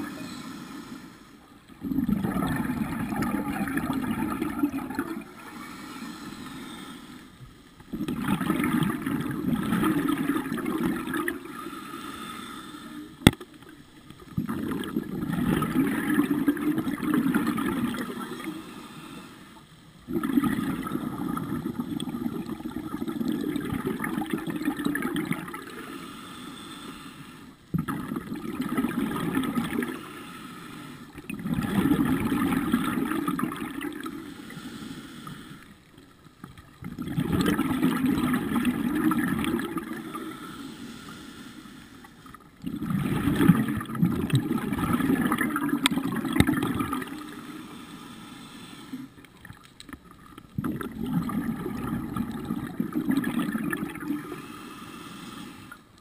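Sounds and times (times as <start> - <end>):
exhaled bubbles gurgling: 0.0 - 0.8, 1.5 - 26.0, 27.6 - 34.6, 35.2 - 40.6, 42.1 - 47.8, 48.8 - 56.0
regulator inhalations: 0.0 - 1.5, 5.3 - 7.4, 11.4 - 13.2, 18.2 - 19.7, 25.6 - 27.6, 29.8 - 31.2, 33.9 - 35.9, 39.5 - 42.4, 47.0 - 49.4, 54.0 - 56.0.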